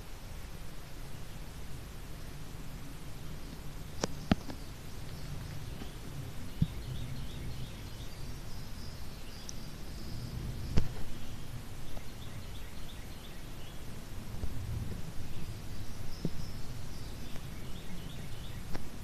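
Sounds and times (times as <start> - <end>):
wind rumble on microphone: 0.0 - 19.0
faint high bird chirps: 4.0 - 13.9, 15.2 - 18.8.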